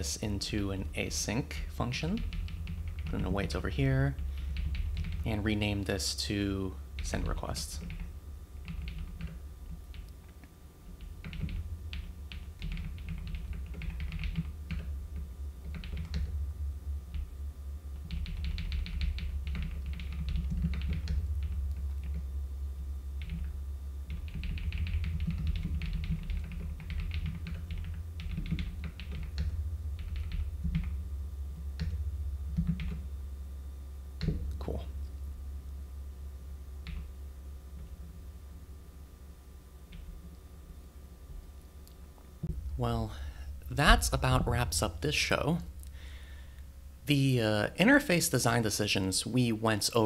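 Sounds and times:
steady low hum: 0.0s - 50.0s
keyboard typing: 2.2s - 3.5s, 4.4s - 5.3s, 7.8s - 10.1s, 11.0s - 16.3s, 18.0s - 22.2s, 23.2s - 23.5s, 24.1s - 31.0s, 31.8s - 33.0s.

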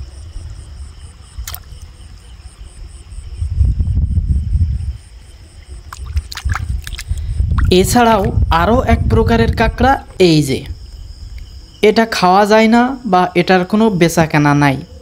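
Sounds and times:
low microphone rumble: 0.0s - 11.8s
insects trilling: 0.0s - 15.0s
water splashing: 1.4s - 1.9s, 5.8s - 8.8s.

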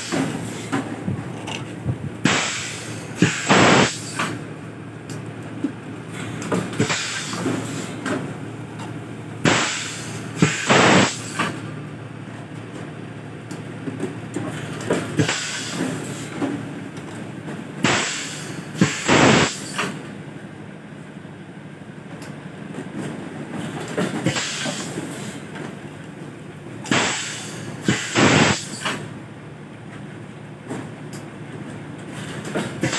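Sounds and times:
compressed-air hiss bursts: 0.0s - 0.8s, 2.2s - 4.4s, 6.8s - 8.0s, 9.4s - 11.6s, 15.2s - 16.3s, 17.8s - 20.0s, 24.2s - 25.4s, 26.9s - 29.0s.

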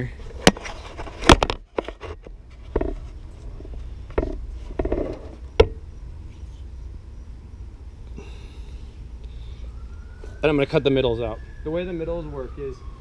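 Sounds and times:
knocks and clunks of handling: 0.3s - 5.8s
low steady rumble: 2.2s - 10.2s.

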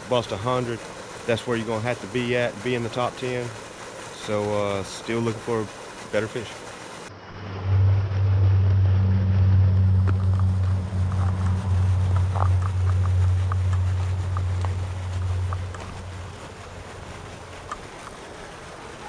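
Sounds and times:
low engine drone: 4.3s - 19.0s.

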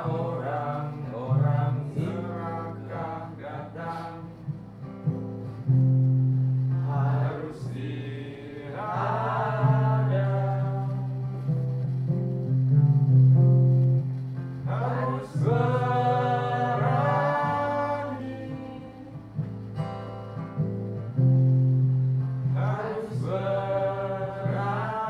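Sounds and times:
person singing: 0.0s - 4.6s, 6.8s - 11.5s, 14.6s - 19.4s, 22.5s - 25.0s
acoustic guitars strumming: 0.0s - 25.0s.

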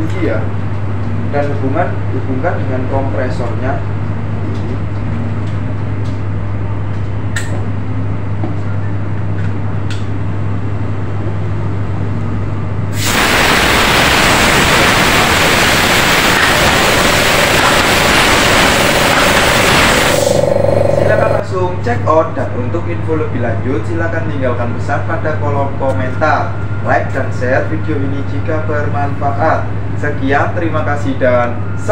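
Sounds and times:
steady low hum: 0.0s - 31.9s
compressed air hissing: 12.9s - 21.4s.

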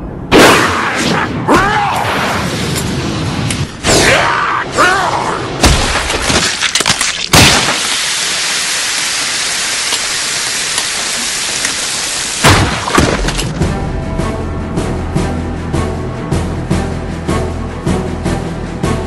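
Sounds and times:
steady hiss: 7.8s - 12.4s.

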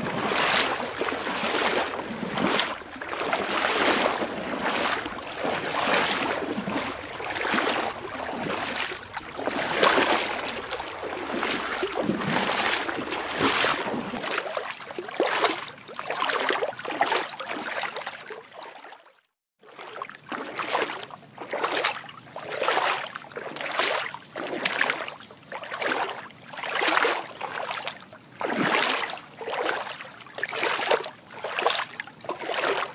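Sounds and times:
water sloshing: 0.0s - 18.9s, 19.7s - 32.9s.

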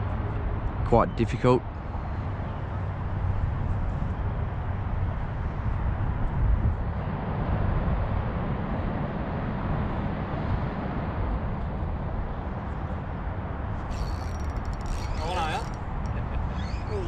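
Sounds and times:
wind buffeting microphone: 1.8s - 17.0s.

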